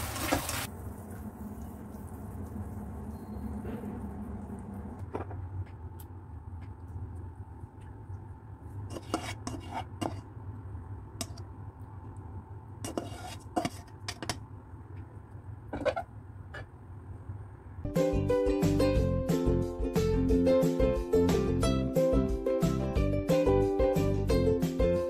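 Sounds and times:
plastic spatula scraping a wok: 8.9 - 10.3, 12.8 - 14.4.

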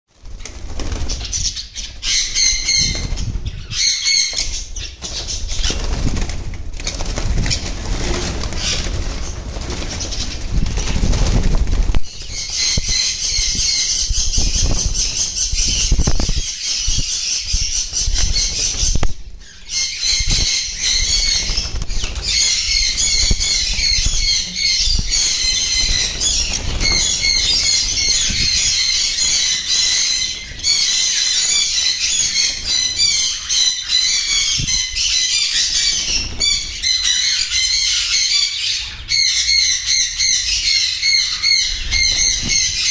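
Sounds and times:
wing flapping: 0.1 - 19.2, 20.1 - 29.7
parrots chattering: 12.3 - 42.9.

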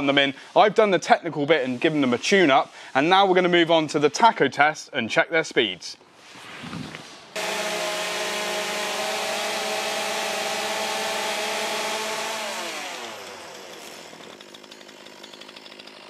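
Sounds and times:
chainsaw engine at full throttle: 7.4 - 16.0
chainsaw idling: 7.4 - 16.0.

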